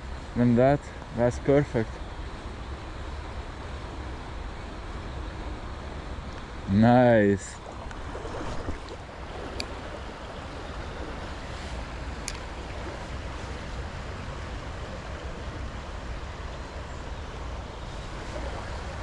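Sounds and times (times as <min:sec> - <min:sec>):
river water rushing: 0:07.5 - 0:19.0
faint clicks: 0:12.2 - 0:12.5.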